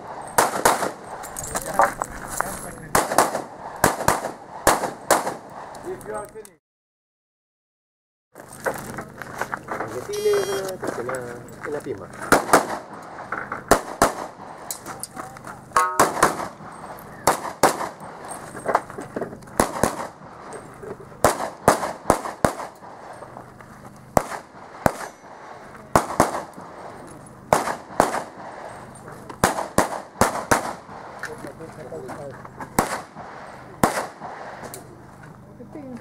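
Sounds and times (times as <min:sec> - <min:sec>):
handgun shots: 0:00.4 - 0:01.0, 0:02.9 - 0:05.4, 0:15.8 - 0:16.6, 0:32.8 - 0:33.2, 0:33.8 - 0:34.8.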